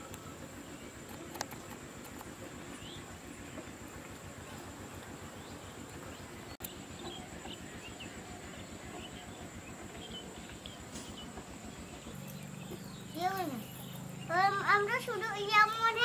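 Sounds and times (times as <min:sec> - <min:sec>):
bird chirps: 0:05.2 - 0:14.8.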